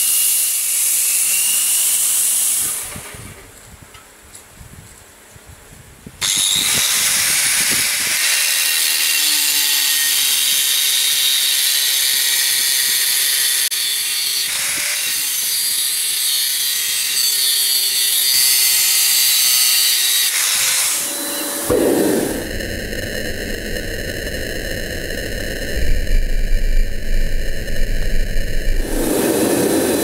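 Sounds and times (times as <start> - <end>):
angle grinder cutting steel: 0.0 - 2.9, 6.2 - 21.7.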